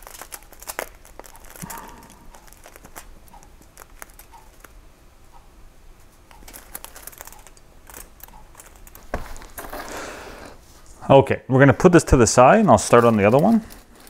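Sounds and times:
metal pick clicking and scraping: 6.3 - 9.1.

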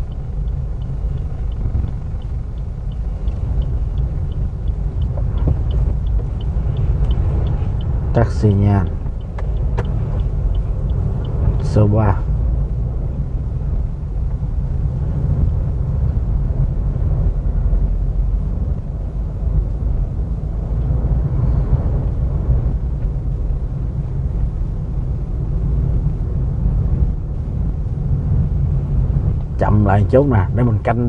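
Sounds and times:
car engine rumble: 0.0 - 31.0
road noise: 0.0 - 31.0.

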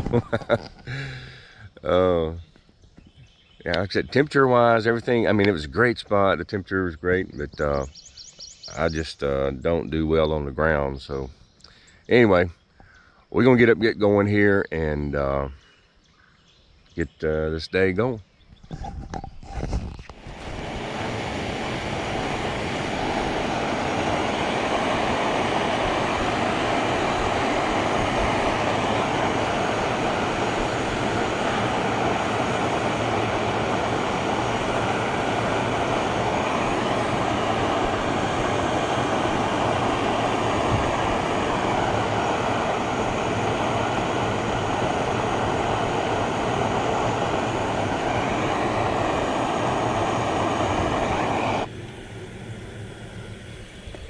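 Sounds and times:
gas stove burner roaring: 0.0 - 2.3, 20.1 - 54.0.

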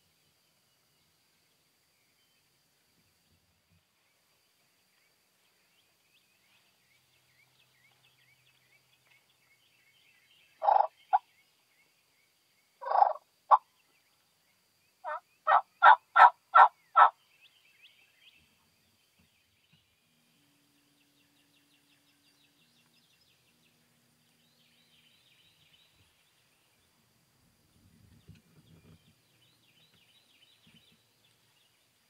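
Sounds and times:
small birds chirping: 0.0 - 32.0
wild turkey yelping: 10.6 - 11.2, 12.8 - 13.6, 15.0 - 17.2.

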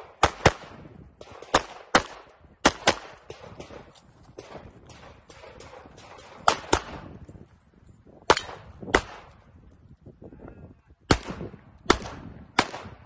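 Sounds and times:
loud handgun shots: 0.0 - 3.8, 4.4 - 7.1, 11.1 - 13.0.

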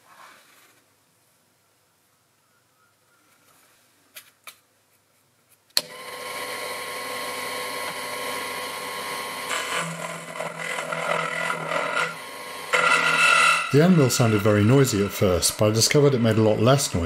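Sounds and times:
end mill cutting steel: 5.8 - 17.0
mill spindle motor whine: 5.8 - 17.0.

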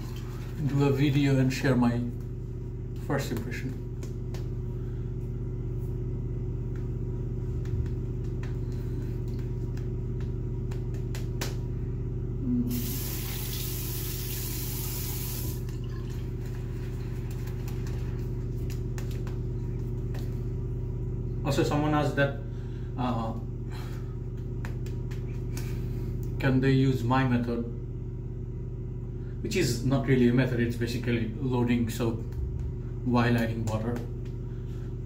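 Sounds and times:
water tap running: 0.0 - 0.6, 12.7 - 16.8
steady low hum: 0.0 - 35.0.

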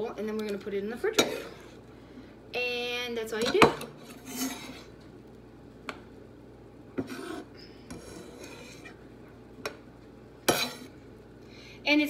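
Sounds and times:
scraping on wooden cutting board: 4.0 - 5.0, 7.0 - 9.0.

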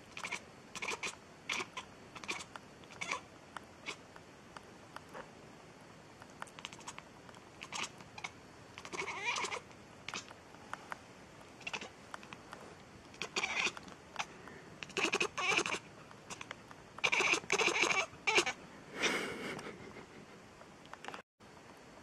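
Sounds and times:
cat meowing: 0.2 - 3.2, 7.6 - 10.3, 13.2 - 16.4, 17.0 - 18.6.

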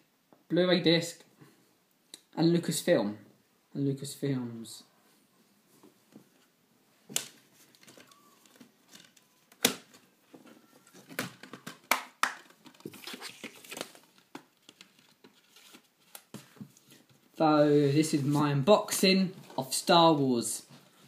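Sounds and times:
plastic shrink-wrap crinkling: 12.5 - 16.2.

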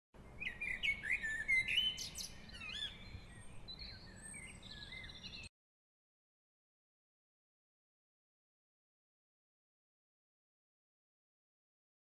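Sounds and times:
songbirds chirping and singing: 0.2 - 5.5.

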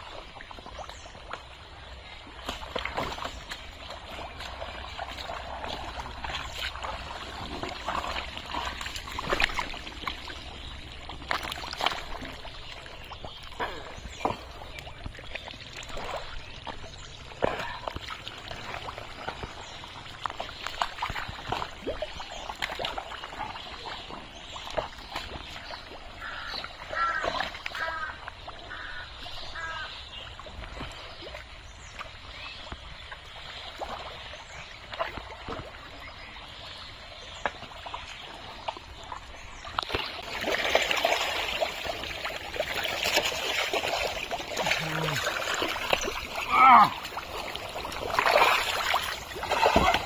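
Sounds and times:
squelching in mud: 2.2 - 29.0, 39.7 - 50.0
sharp splashes in water: 2.2 - 32.2, 37.4 - 50.0.

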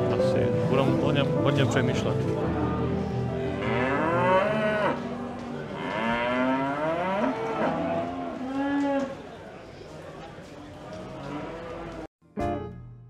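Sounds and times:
cattle mooing: 3.5 - 9.1.

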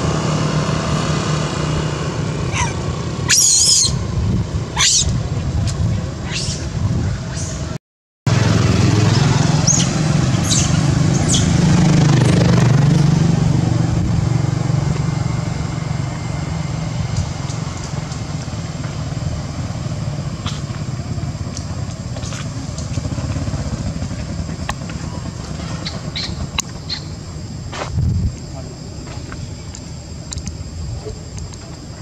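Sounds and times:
short high squeaks: 2.5 - 4.0, 4.8 - 5.2
motorcycle engine passing: 8.3 - 27.2.

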